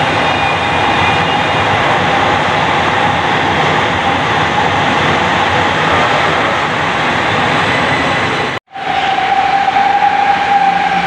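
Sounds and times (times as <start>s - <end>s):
electric train running: 0.0s - 11.0s.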